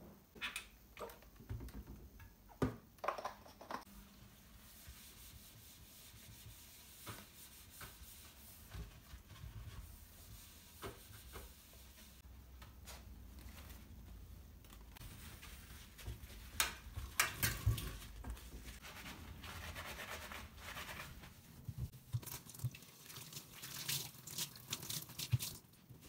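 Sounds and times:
sponge scrubbing steel sink: 4.0s - 12.2s, 15.0s - 25.6s.

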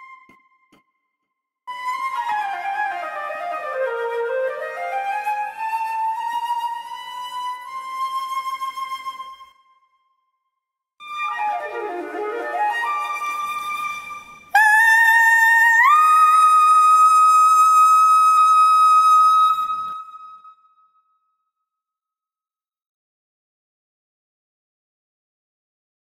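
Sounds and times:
flute: 0.0s - 1.0s, 1.7s - 10.2s, 11.0s - 21.1s
soprano singing operatic cadenza: 14.5s - 17.8s.

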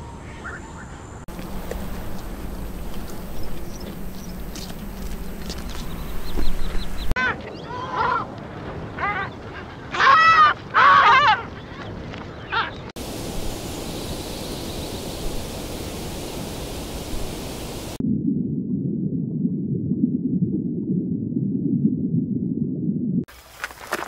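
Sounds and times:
water hiss: 13.0s - 18.0s
muffled underwater rumble: 16.7s - 23.2s.

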